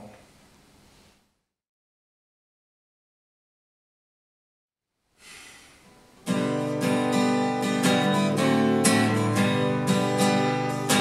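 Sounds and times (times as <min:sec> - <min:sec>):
acoustic guitar strumming: 0:05.8 - 0:11.0.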